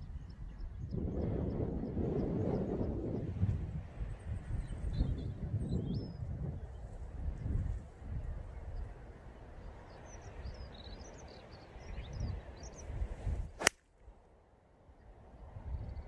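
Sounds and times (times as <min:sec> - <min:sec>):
wind buffeting microphone: 0:00.0 - 0:13.6, 0:15.3 - 0:16.0
golf club striking ball: 0:13.6 - 0:13.8.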